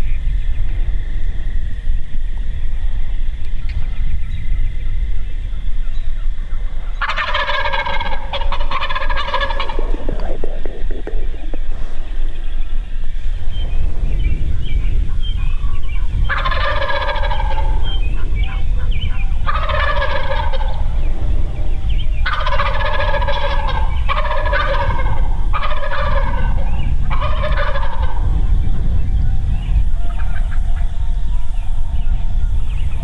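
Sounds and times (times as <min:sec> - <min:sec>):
steady low rumble: 0:00.0 - 0:33.0
turkey gobbling: 0:06.4 - 0:12.8, 0:15.4 - 0:20.9, 0:22.2 - 0:28.2, 0:30.0 - 0:31.2.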